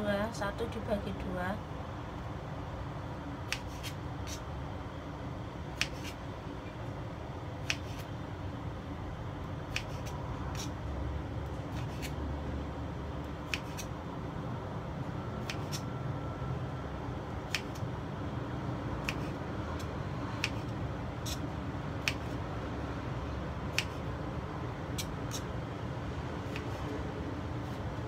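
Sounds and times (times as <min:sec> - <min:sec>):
low background hum: 0:00.0 - 0:28.0
knife chopping on cutting board: 0:13.5 - 0:13.9.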